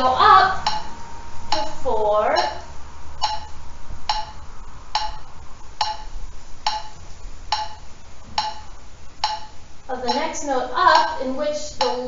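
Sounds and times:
metronome clicking: 0:00.0 - 0:03.5, 0:05.0 - 0:12.0.

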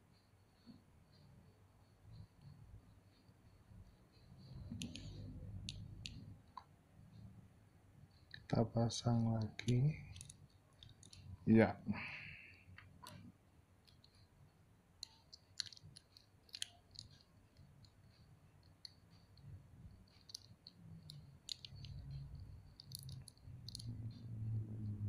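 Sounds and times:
small plastic pieces clicking: 0:09.4 - 0:11.2, 0:15.0 - 0:17.2, 0:20.2 - 0:22.0, 0:22.8 - 0:23.9.

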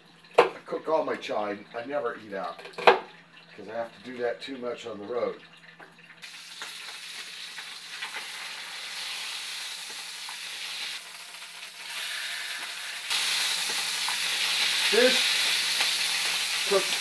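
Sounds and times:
food sizzling in a pan: 0:06.2 - 0:17.0.

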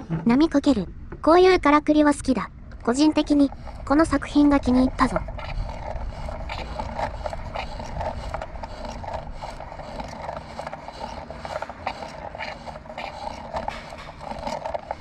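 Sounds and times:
wooden parts rubbing and scraping: 0:03.0 - 0:15.0.

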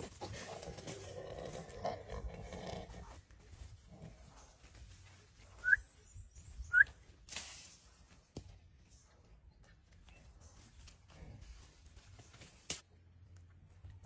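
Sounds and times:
grunting: 0:00.0 - 0:04.3.

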